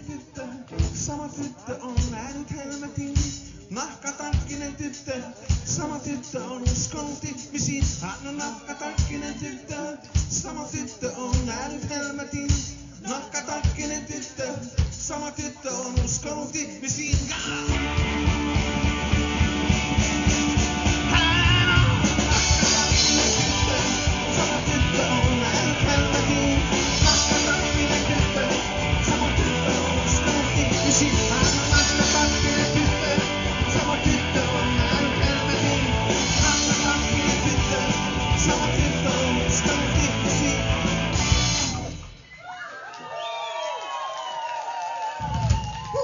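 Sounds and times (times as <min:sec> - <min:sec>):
drum kit: 0:00.0 - 0:42.3
bass guitar: 0:17.2 - 0:42.2
electric guitars: 0:17.3 - 0:42.2.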